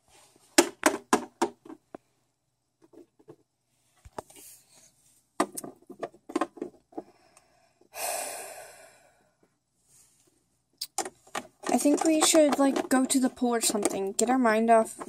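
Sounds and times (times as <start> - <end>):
plastic toys clicking and knocking: 0.6 - 2.0, 5.4 - 7.2, 10.8 - 15.0.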